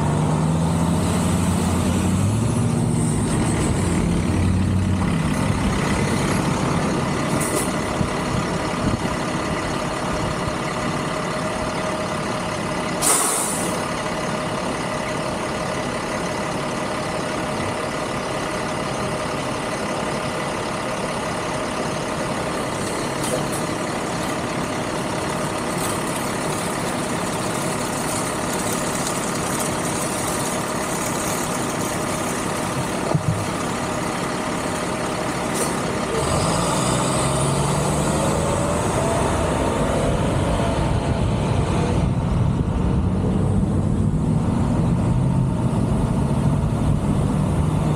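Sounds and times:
dump truck engine idling: 0:00.1 - 0:38.0
brief hiss: 0:13.0 - 0:13.8.

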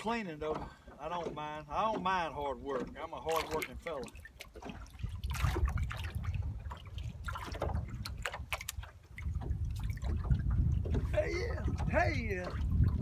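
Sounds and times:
waves lapping against boat hull: 0:00.0 - 0:13.0
wind on microphone: 0:04.6 - 0:13.0.

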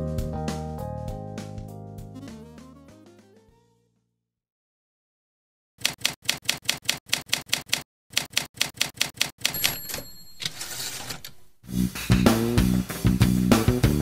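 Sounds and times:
typewriter bell ringing: 0:09.5 - 0:11.5.

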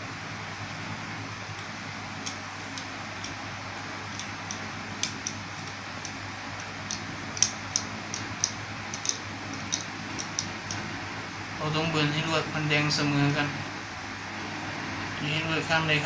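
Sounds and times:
pliers clicking on metal: 0:04.1 - 0:10.8.

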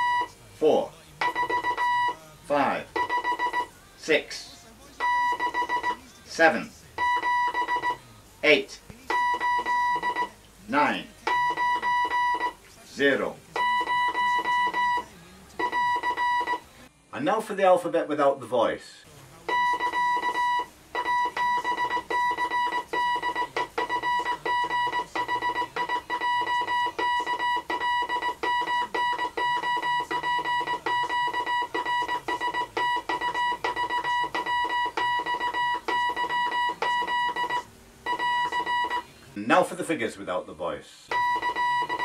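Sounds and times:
morse code beeping: 0:00.0 - 0:00.4, 0:01.2 - 0:03.7, 0:05.0 - 0:06.1, 0:07.0 - 0:08.0, 0:09.1 - 0:10.4, 0:11.3 - 0:12.6, 0:13.6 - 0:16.7, 0:19.5 - 0:39.1, 0:41.1 - 0:42.0.

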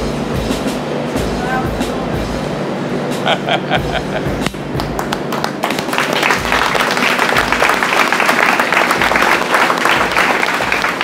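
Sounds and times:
background music: 0:00.0 - 0:11.0
crowd applauding: 0:04.8 - 0:11.0.

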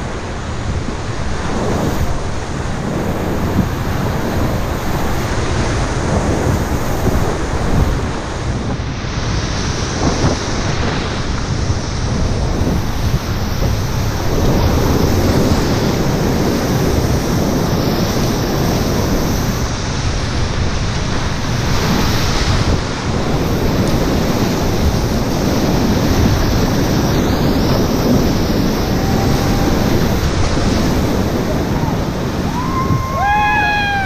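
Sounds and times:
whitewater rapids rushing: 0:21.2 - 0:34.0.

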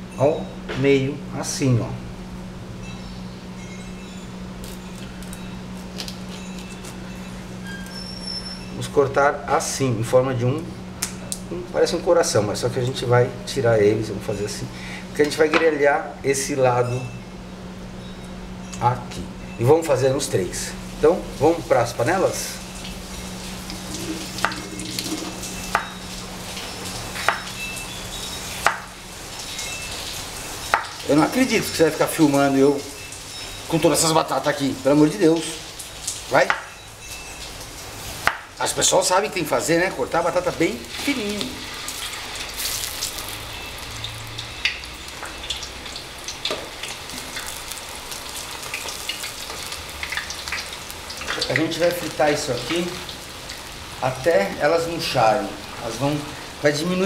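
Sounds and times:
steady low hum: 0:00.0 - 0:42.1
oil crackles and pops: 0:04.6 - 0:07.1, 0:22.7 - 0:27.9, 0:28.6 - 0:31.1, 0:37.4 - 0:38.6, 0:40.9 - 0:53.8
potato slices sizzling in oil: 0:20.2 - 0:56.9.

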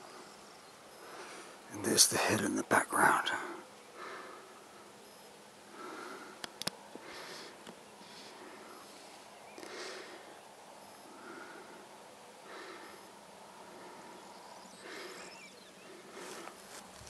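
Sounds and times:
steady hiss: 0:00.0 - 0:17.0
person breathing and sniffing: 0:16.0 - 0:16.9.

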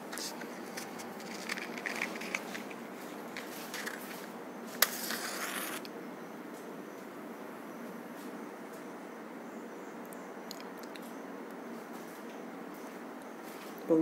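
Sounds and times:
match flaring hiss: 0:04.7 - 0:05.9
match struck on box: 0:04.8 - 0:05.9.

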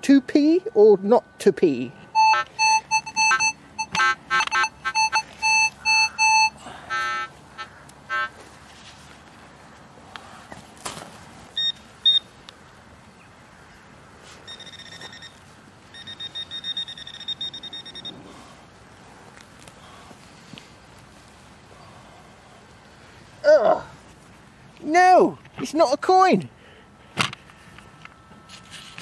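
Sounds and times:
metal detector beeping: 0:00.4 - 0:08.4, 0:11.6 - 0:12.3, 0:14.4 - 0:18.2.

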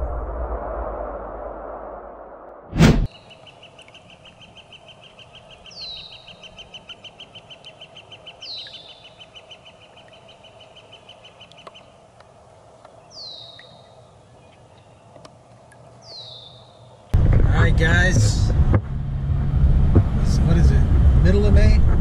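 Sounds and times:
bird trilling: 0:03.1 - 0:11.9.

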